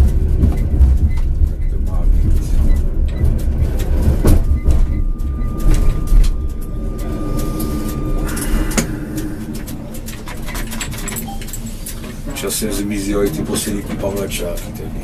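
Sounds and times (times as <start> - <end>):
tram rumbling on rails: 0.0 - 15.0
steady high tone: 2.5 - 11.9.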